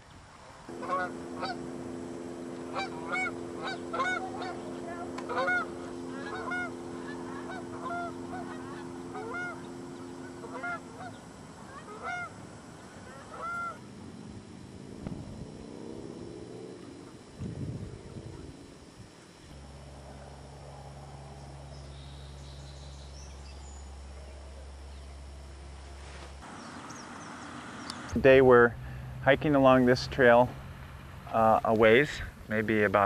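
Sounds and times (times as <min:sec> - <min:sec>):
low hum: 0:00.3 - 0:33.0
geese honking: 0:00.7 - 0:14.3.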